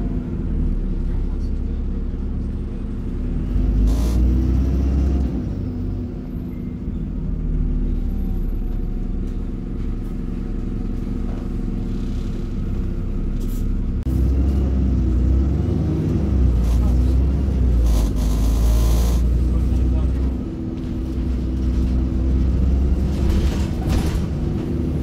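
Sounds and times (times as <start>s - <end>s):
bus engine rumble: 0.0s - 25.0s.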